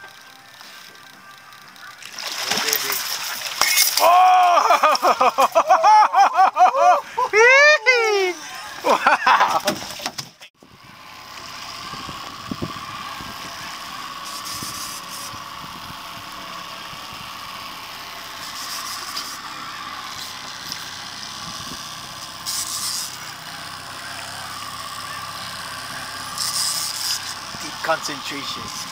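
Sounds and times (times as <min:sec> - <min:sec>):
outboard motor running: 0:00.0 - 0:28.9
person speaking: 0:07.2 - 0:08.8.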